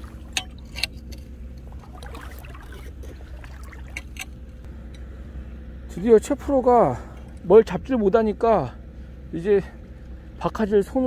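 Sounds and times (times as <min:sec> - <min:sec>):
seawater trickling among rocks: 0:00.0 - 0:04.6.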